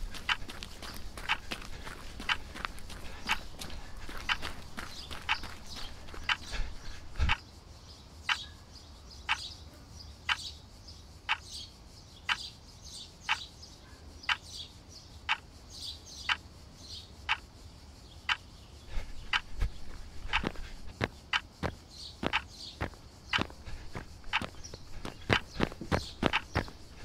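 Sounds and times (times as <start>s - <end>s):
footfalls on stone steps: 0.0s - 7.4s, 19.4s - 27.0s
steady ticking: 0.0s - 7.4s, 17.3s - 17.5s, 18.3s - 27.0s.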